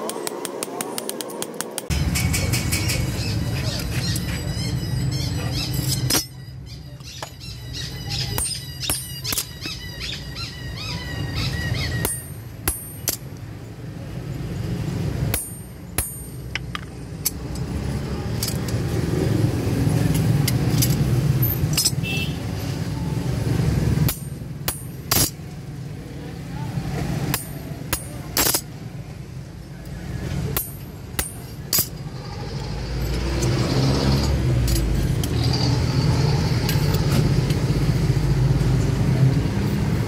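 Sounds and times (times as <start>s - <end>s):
hammer striking steel on anvil: 5.8s - 6.4s, 8.3s - 9.8s, 12.0s - 13.4s, 15.3s - 17.4s, 24.0s - 25.4s, 27.2s - 28.7s, 30.5s - 32.0s.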